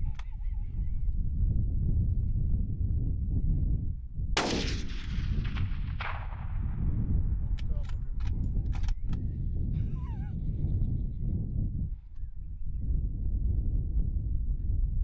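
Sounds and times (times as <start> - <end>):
wind on the microphone: 0.0 - 15.0
fainter gunshot crack: 4.4 - 6.8
rifle shot: 4.4 - 7.6
sharp clicks: 7.5 - 9.2.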